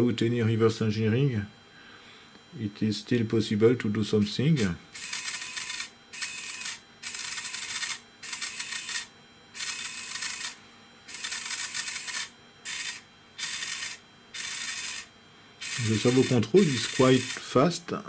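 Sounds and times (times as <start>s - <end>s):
servo motor whirring: 5.0s - 17.5s.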